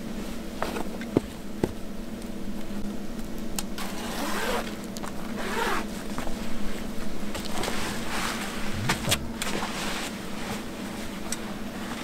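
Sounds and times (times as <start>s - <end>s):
steady low hum: 0.0s - 12.0s
zipper rasping: 3.8s - 4.7s, 5.4s - 5.9s.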